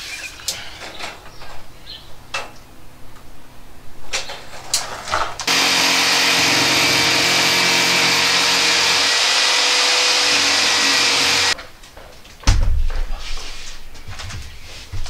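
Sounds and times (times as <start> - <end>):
electric motor running: 5.5 - 11.6.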